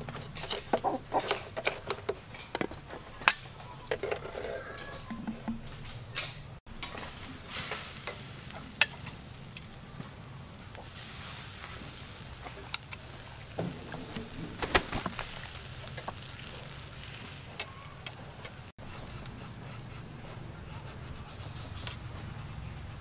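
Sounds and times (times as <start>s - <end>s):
insects chirping: 0.8s - 3.3s, 4.2s - 18.7s, 19.6s - 22.0s
metal tongs clicking on grill: 12.4s - 14.7s, 15.8s - 16.4s, 17.1s - 18.6s.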